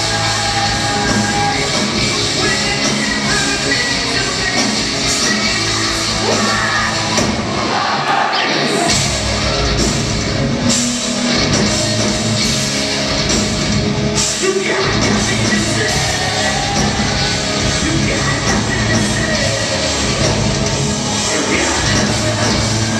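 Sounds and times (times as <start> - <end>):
person singing: 0.0 - 7.1, 14.4 - 22.9
bass guitar: 0.0 - 7.8, 8.6 - 22.9
distorted electric guitars: 0.0 - 22.9
drums: 0.0 - 22.9.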